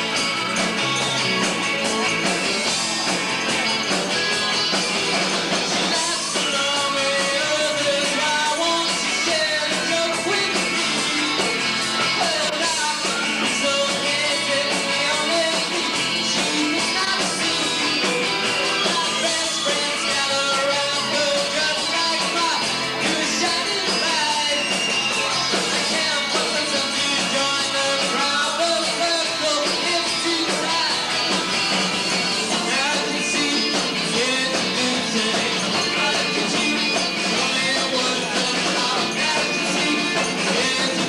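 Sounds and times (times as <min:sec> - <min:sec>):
bass guitar: 0:00.0 - 0:41.0
drum kit: 0:00.0 - 0:41.0
electric guitar: 0:00.0 - 0:41.0
man singing into a microphone: 0:05.9 - 0:11.5, 0:12.2 - 0:18.2, 0:18.8 - 0:24.8, 0:25.8 - 0:31.1, 0:32.5 - 0:41.0.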